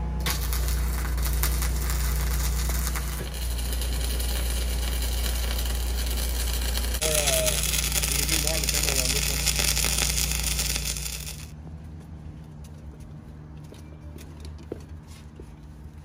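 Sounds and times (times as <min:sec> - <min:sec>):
low machine hum: 0:00.0 - 0:11.6
welding arc crackling hiss: 0:00.2 - 0:11.6.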